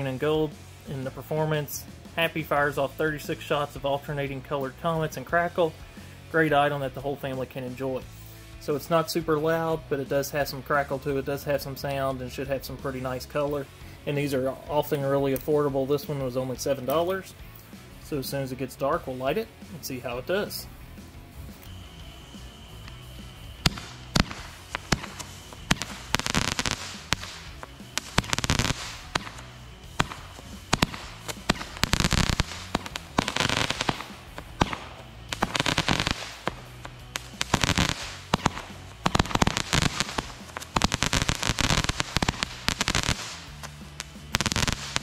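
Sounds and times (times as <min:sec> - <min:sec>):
firework crackling: 0:21.4 - 0:45.0
firework launch pops: 0:23.6 - 0:45.0.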